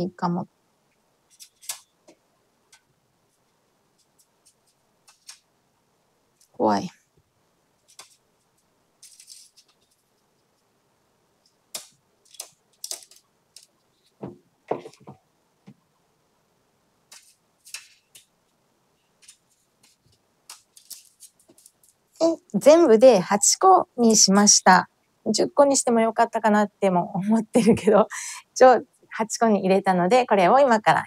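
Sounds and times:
foil crinkling: 19.2s - 22.0s.

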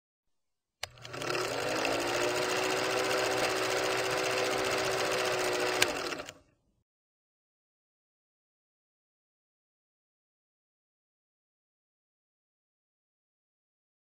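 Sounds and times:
film projector clattering: 0.8s - 6.4s.

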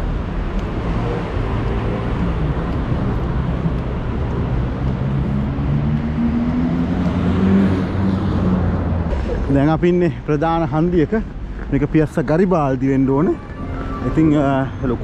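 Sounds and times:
engine hum: 0.0s - 9.6s
passing cars: 0.0s - 15.0s.

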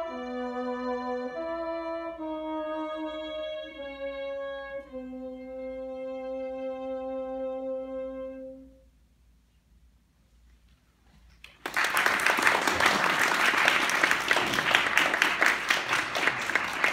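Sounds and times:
audience applauding: 11.4s - 16.9s.

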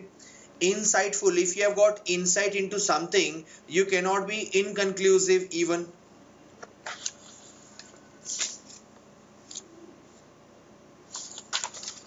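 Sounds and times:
faint clicks and rustles: 11.1s - 12.0s.

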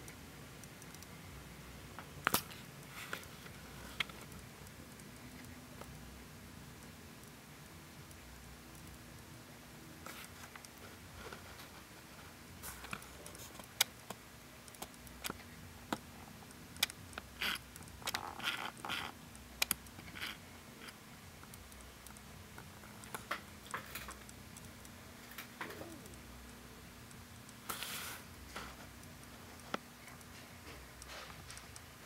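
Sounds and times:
mechanism clicking and rattling: 12.6s - 26.2s.

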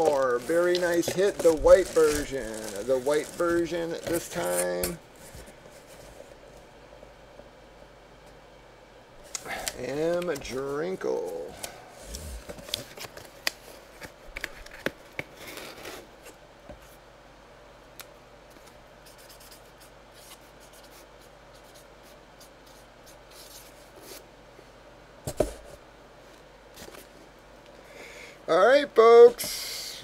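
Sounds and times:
hands handling objects: 0.0s - 6.2s.

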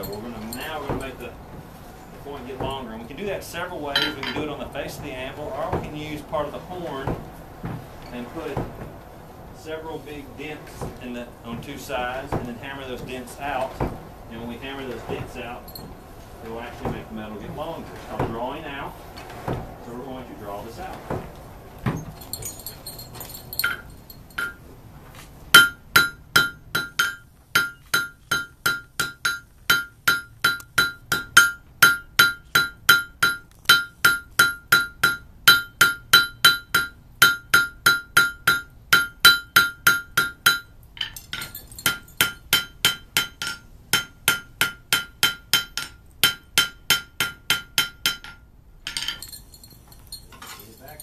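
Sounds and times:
hammer striking on anvil: 4.0s - 4.5s, 23.6s - 24.7s, 25.6s - 49.2s.

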